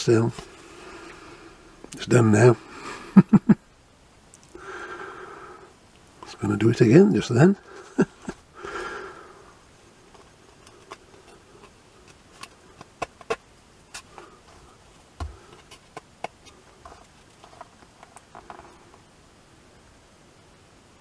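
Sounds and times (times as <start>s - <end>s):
breathy rustle: 7.6s - 12.8s.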